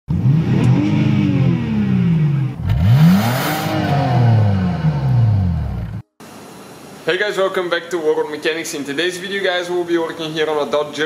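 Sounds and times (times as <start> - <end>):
car engine revving: 0.1 - 6.0.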